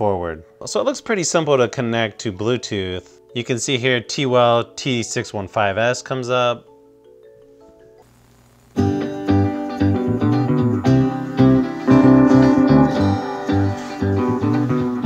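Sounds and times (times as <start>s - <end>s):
music with guitar and heavy bass: 8.8s - 15.0s
faint steady tones: 11.2s - 15.0s.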